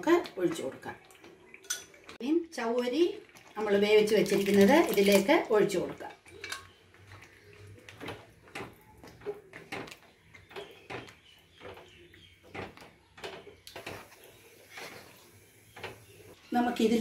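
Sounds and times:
wooden spatula scraping pan: 6.9s - 16.4s.

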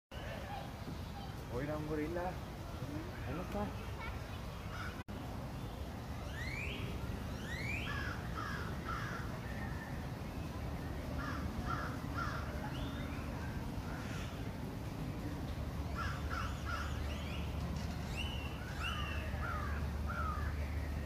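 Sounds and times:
birds calling: 2.8s - 5.0s, 5.6s - 10.0s, 11.1s - 21.0s
low background rumble: 3.8s - 21.0s.

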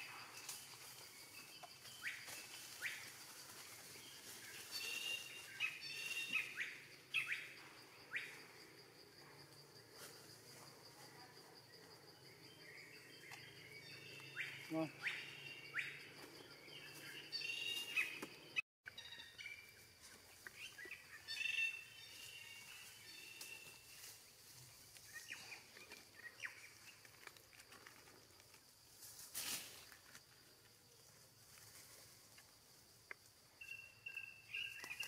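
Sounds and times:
birds chirping: 12.2s - 19.8s.

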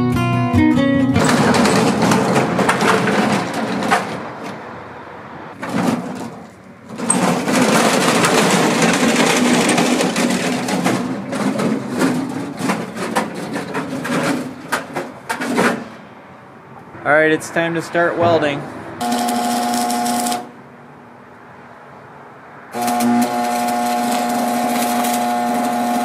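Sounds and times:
gear dragged over gravel: 5.6s - 14.7s, 22.8s - 26.0s.

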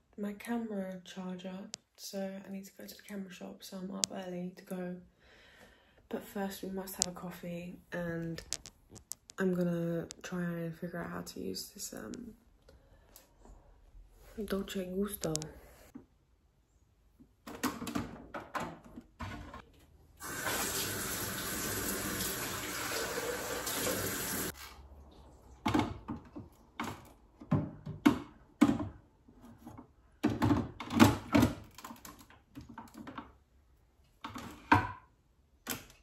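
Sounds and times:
kitchen tap running: 20.2s - 24.5s.

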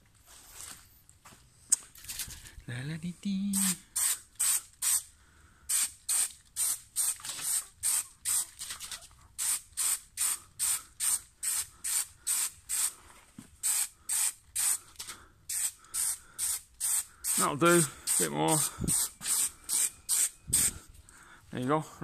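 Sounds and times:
aerosol spray hissing in spurts: 3.6s - 5.1s, 5.7s - 8.5s, 9.4s - 13.0s, 13.6s - 20.8s.

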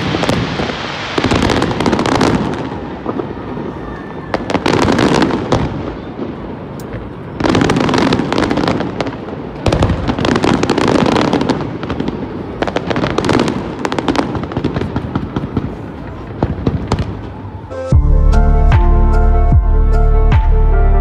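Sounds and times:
fireworks bursting in rapid bangs: 0.0s - 6.2s, 7.4s - 17.5s.

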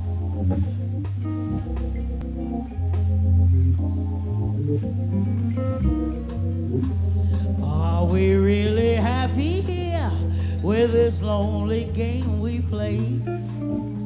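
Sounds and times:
bass line: 0.0s - 14.0s
drums: 0.0s - 14.0s
guitar: 0.0s - 14.0s
organ chords: 0.0s - 14.0s
woman singing: 7.6s - 13.6s.

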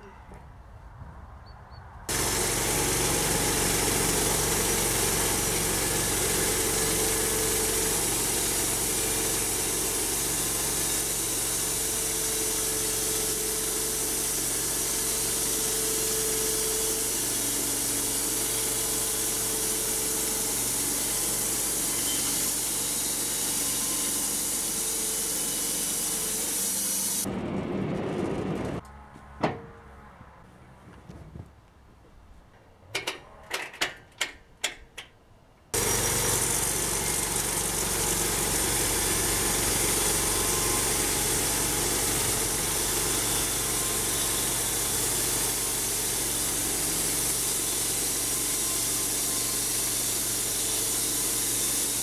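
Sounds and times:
band sawmill blade cutting log: 2.1s - 27.3s, 35.8s - 52.0s.

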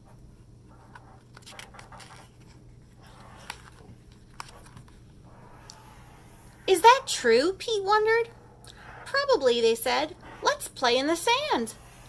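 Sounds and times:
low steady hum: 0.0s - 12.0s
paper page rustling: 0.8s - 5.0s.

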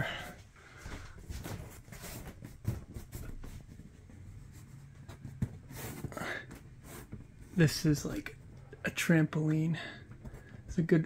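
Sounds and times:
hand rubbing ceiling panel: 0.1s - 8.7s.

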